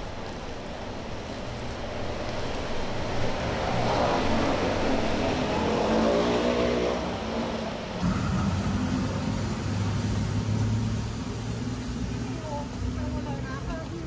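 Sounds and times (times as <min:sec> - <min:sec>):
vehicle engine passing close: 0:03.3 - 0:12.4.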